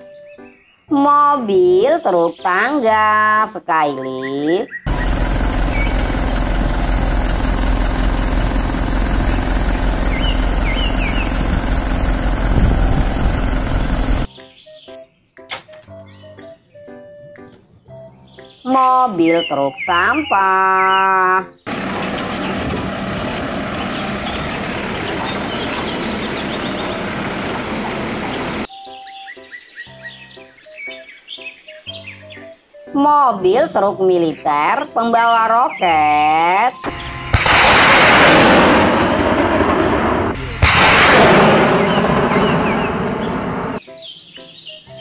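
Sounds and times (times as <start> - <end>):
truck engine running: 4.9 - 14.3, 21.7 - 28.7, 36.8 - 43.8.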